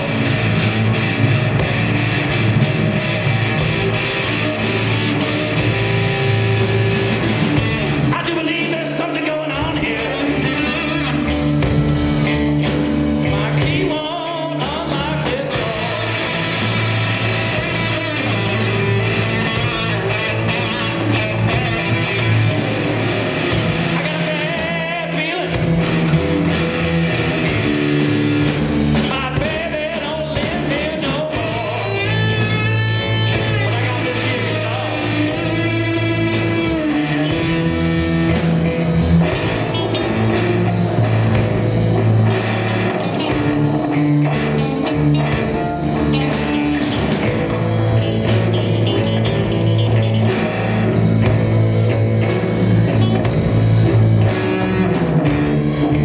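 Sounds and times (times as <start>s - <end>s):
bass guitar: 0.0s - 56.0s
drum kit: 0.0s - 56.0s
electric guitars: 0.0s - 56.0s
person singing: 7.4s - 11.4s, 13.2s - 22.5s, 23.7s - 26.8s, 29.0s - 37.8s.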